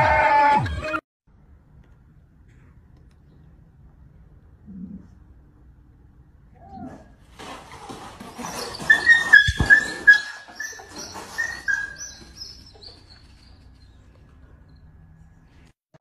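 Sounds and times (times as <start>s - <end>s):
dog whimpering: 8.3s - 14.0s.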